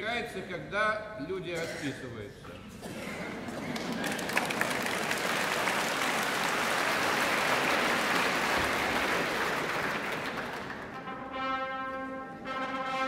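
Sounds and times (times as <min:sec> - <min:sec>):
audience applauding: 0:03.3 - 0:11.2.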